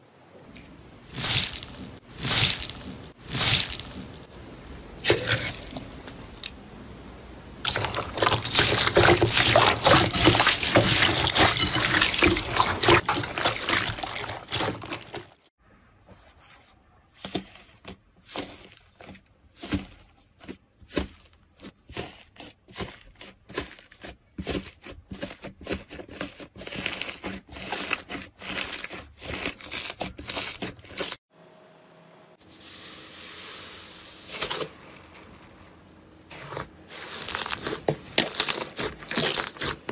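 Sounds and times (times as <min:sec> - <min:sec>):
quiet steady hiss: 0:00.0 - 0:07.7.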